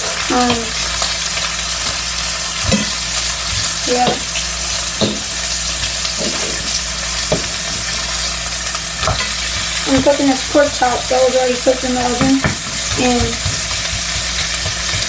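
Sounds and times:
meat sizzling in a skillet: 0.0s - 15.0s
whisk and fork scraping pan: 9.0s - 15.0s.

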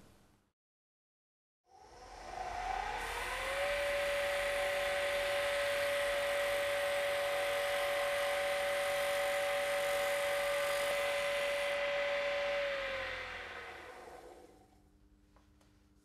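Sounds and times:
lathe motor whine: 1.8s - 14.8s
cutter hissing on spinning wood: 2.3s - 14.6s.

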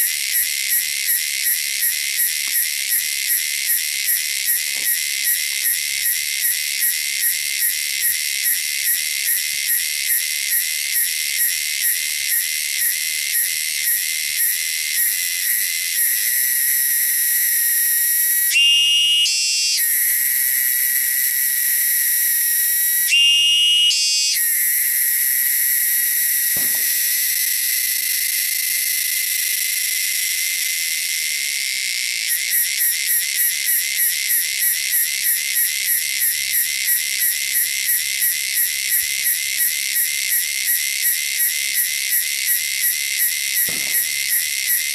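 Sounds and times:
cicada buzzing: 0.0s - 44.9s
rising insect call: 14.4s - 33.5s, 41.8s - 44.9s.

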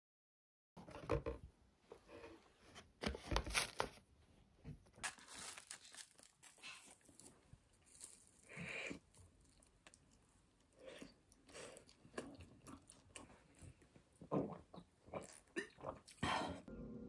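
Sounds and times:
cardboard box rustling and tearing: 5.0s - 6.6s.

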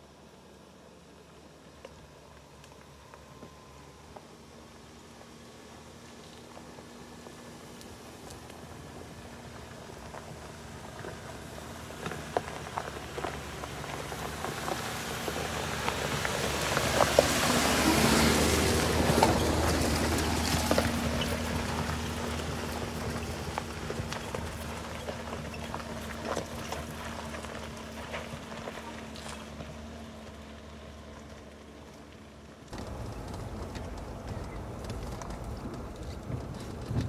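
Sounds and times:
water washing over vehicle: 11.4s - 30.8s.

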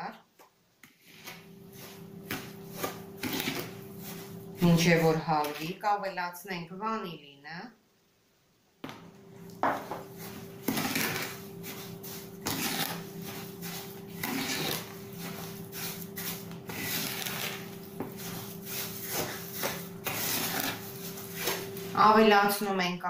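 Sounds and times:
wooden spoon scraping bowl: 0.8s - 5.8s, 9.6s - 22.6s.

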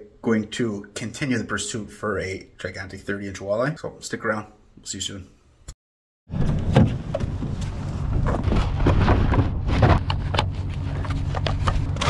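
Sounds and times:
gear clicks and rustles: 6.4s - 12.0s
low steady rumble: 6.4s - 12.0s.

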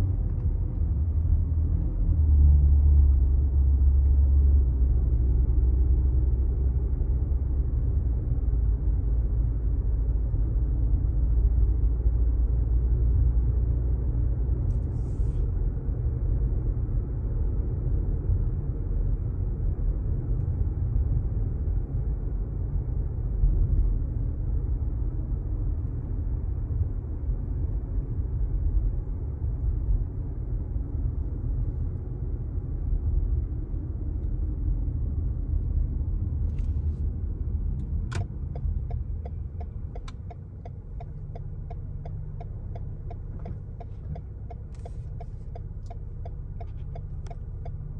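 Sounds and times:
car engine and tyre rumble: 0.0s - 47.9s.

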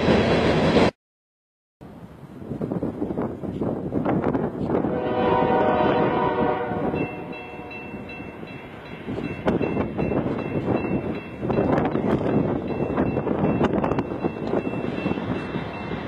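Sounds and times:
train air horn chord: 4.8s - 8.0s.

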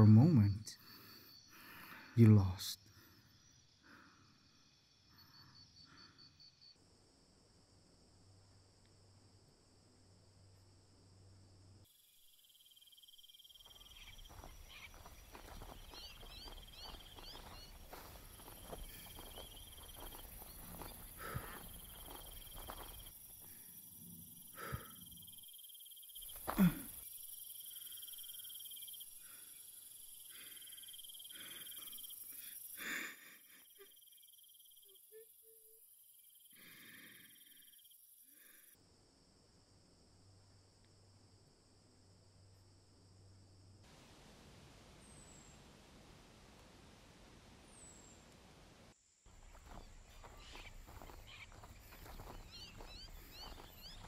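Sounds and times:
insects buzzing: 0.0s - 54.0s
footsteps rustling through undergrowth: 14.2s - 21.4s.

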